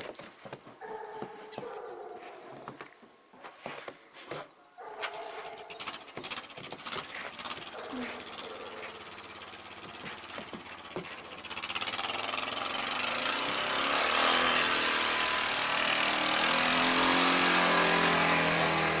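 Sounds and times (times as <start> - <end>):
atv engine running: 5.0 - 19.0.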